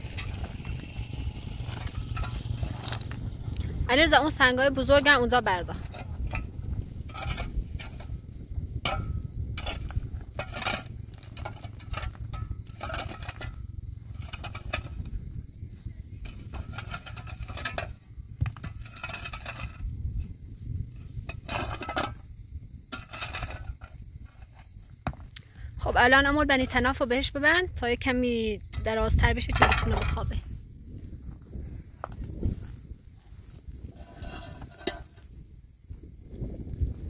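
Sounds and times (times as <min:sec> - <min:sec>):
shovel scraping gravelly ground: 0:00.0 - 0:15.2, 0:15.8 - 0:20.3, 0:21.0 - 0:22.3, 0:22.9 - 0:24.8, 0:33.3 - 0:35.4
steady low rumble: 0:00.0 - 0:37.0.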